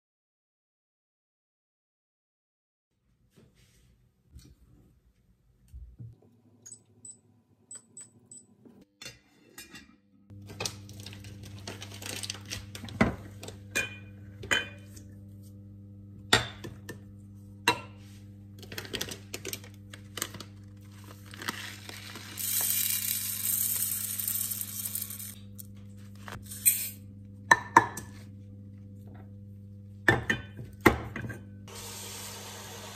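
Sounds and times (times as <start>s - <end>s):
induction hob humming: 10.3s - 32.9s
rice pouring into pot: 21.3s - 25.4s.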